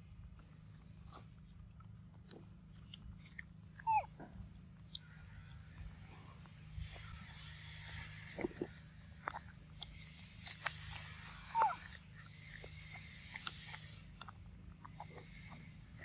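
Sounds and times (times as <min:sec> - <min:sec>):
monkey squeak: 0:03.8 - 0:04.1, 0:11.0 - 0:12.7
monkey chewing wet smacks: 0:08.4 - 0:16.0.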